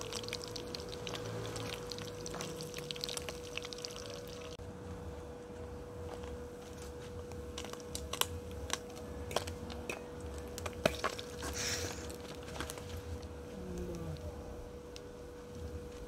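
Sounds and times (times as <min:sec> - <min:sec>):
fish frying in oil: 0:00.0 - 0:04.6.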